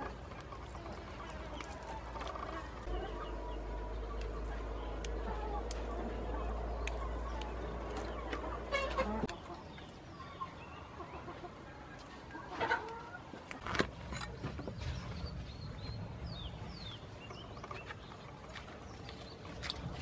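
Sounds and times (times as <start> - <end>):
chickens clucking: 0.0 - 13.5.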